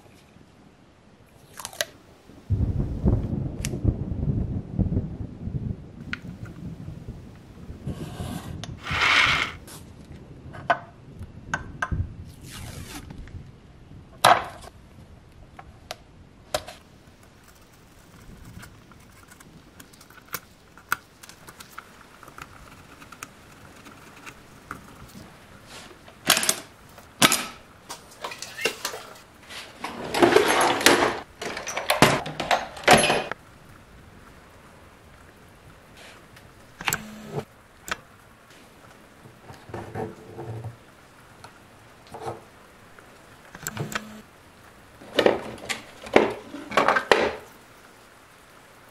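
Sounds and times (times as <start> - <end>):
masking tape tearing: 12.4 - 13.1.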